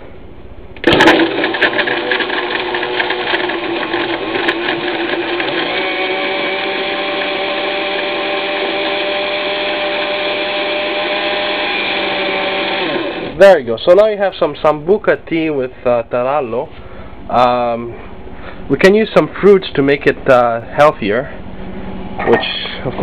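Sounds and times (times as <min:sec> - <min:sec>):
biscuit rattling in blender: 0:00.8 - 0:07.8
blender motor whirring: 0:00.8 - 0:13.4.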